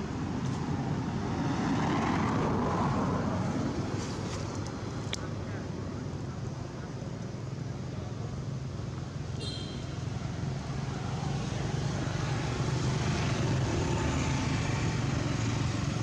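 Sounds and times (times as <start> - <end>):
high chirp: 9.4 - 10.0.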